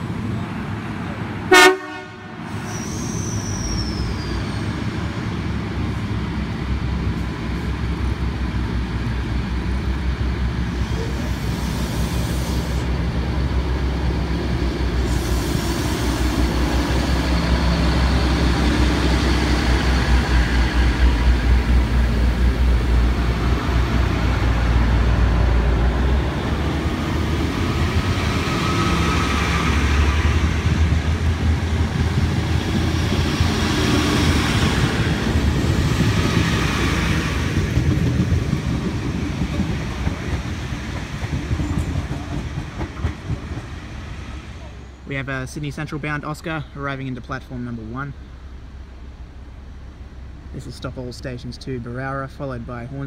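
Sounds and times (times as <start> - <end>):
diesel engines rumbling: 0.0 - 53.0
train horn toot: 1.5 - 2.4.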